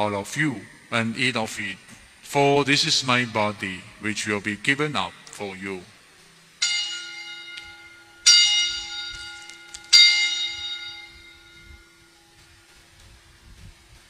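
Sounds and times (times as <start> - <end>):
altar bell ringing: 6.6 - 12.4.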